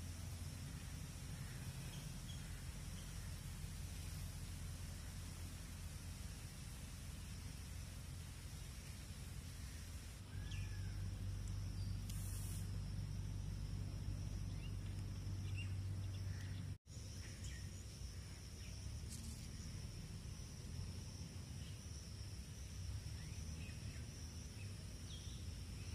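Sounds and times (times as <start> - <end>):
high insect drone: 0.0 - 25.9.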